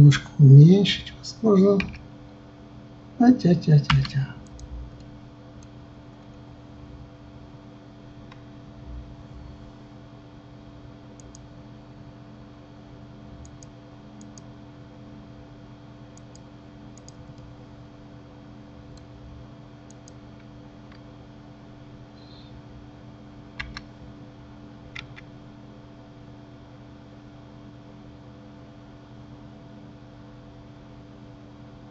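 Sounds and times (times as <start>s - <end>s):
steady low hum: 0.0s - 31.9s
mouse and keyboard clicks: 11.2s - 11.4s, 17.0s - 17.4s, 23.6s - 23.9s.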